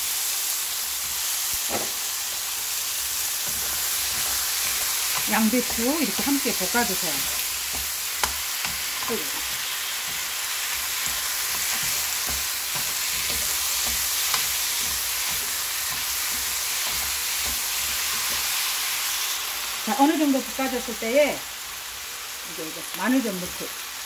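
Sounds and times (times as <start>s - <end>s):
vegetables sizzling in frying pan: 0.0s - 24.0s
spatula tapping on pan: 7.7s - 10.3s, 11.0s - 18.4s.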